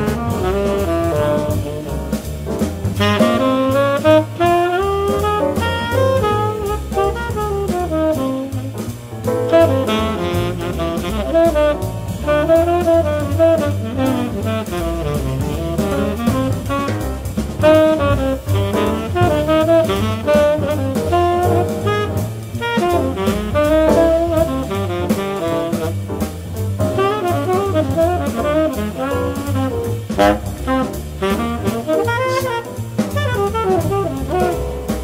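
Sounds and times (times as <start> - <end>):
drum kit: 0.0 - 35.0
piano: 0.0 - 35.0
tenor saxophone: 0.0 - 35.0
walking bass: 0.0 - 35.0.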